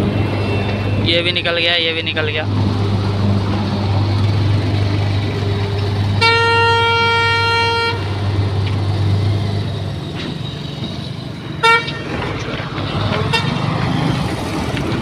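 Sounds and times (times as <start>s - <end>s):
diesel engine humming: 0.0s - 15.0s
vehicle horn: 6.1s - 8.2s, 11.6s - 12.2s, 13.3s - 13.6s.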